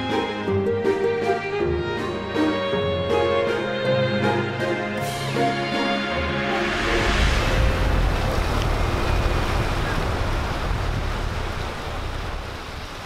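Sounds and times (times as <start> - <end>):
ocean surf on beach: 6.4 - 13.0
wind rumbling on microphone: 6.5 - 13.0.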